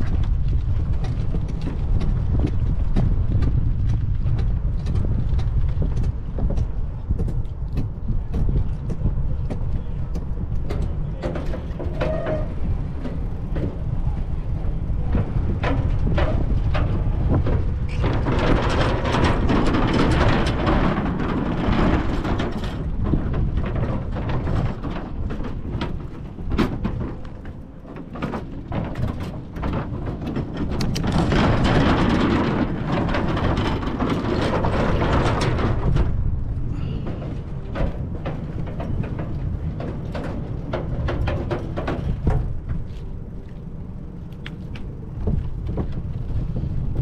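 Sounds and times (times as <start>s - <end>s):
road noise: 0.0s - 47.0s
wind rumble: 0.0s - 47.0s
small clicks and knocks: 15.1s - 36.2s.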